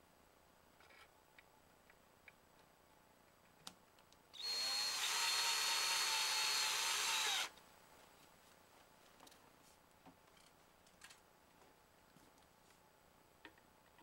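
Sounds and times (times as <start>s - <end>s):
cordless drill motor whine: 4.4s - 7.5s.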